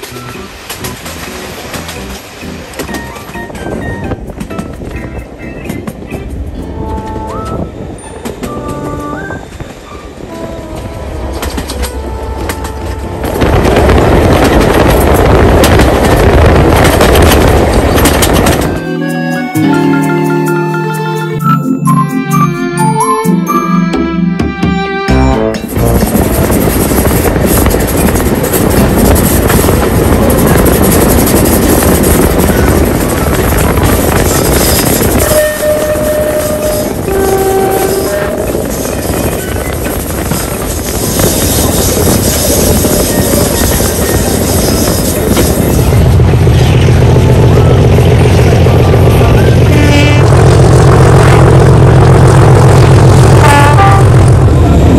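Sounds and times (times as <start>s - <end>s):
sharp rail clicks: 0.0s - 9.0s, 10.8s - 18.8s
train carriages rumbling on rails: 0.0s - 19.7s, 24.3s - 54.9s
steady high tone: 18.7s - 26.0s.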